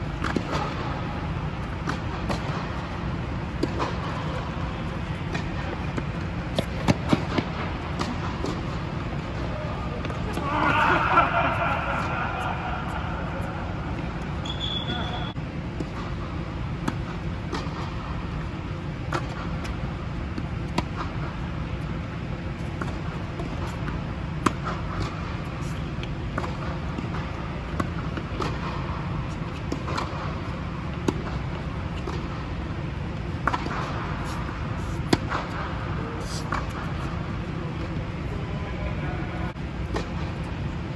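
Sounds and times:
racket hitting tennis ball: 0.1 - 14.4, 15.8 - 19.8, 22.6 - 32.7, 33.3 - 37.1
ball bouncing on hard court: 1.6 - 16.2, 16.8 - 17.9.

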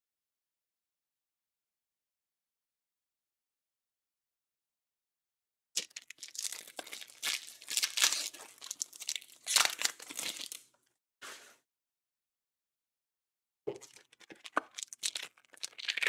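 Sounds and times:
plastic wrapper tearing and crinkling: 5.8 - 10.7, 13.8 - 16.0.

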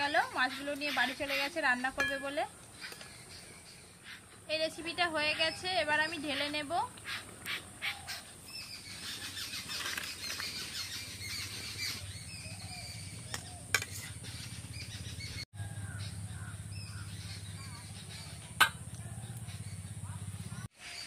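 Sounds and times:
birds chirping: 0.0 - 21.0
metal ladle clinking on bowl: 2.0 - 2.4.

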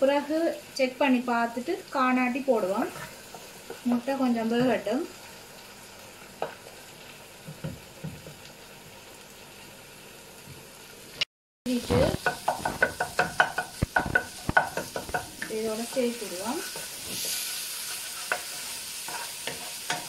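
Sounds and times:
eggs sizzling in a wok: 0.0 - 20.0
wooden spatula scraping pan: 2.7 - 3.8, 12.0 - 20.0.

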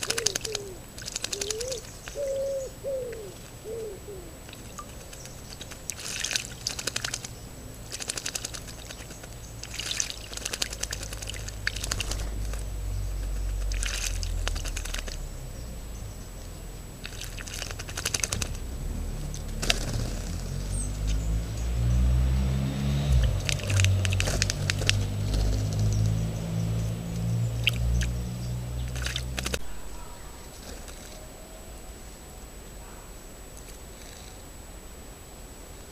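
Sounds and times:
birds splashing in water: 0.0 - 31.2
low rumble: 8.6 - 32.0.

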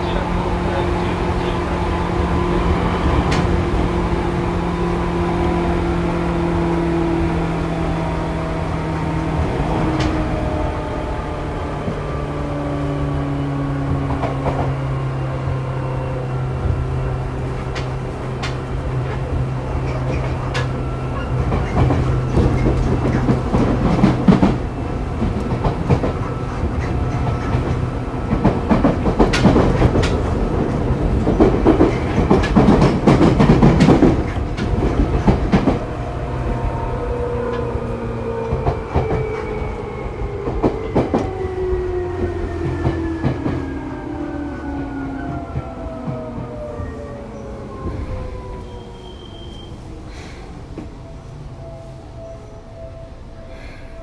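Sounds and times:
train wheels clacking over rail joints: 19.8 - 24.6, 25.2 - 35.9.

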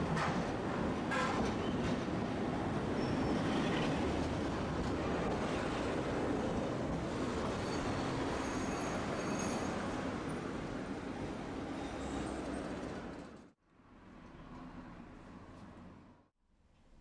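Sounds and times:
streetcar wheels on track: 0.0 - 13.6.

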